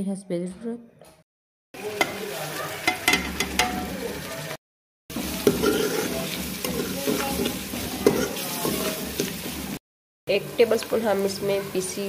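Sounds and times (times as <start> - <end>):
onions sizzling in pan: 1.8 - 12.0
spoon scraping metal pot: 5.2 - 9.6.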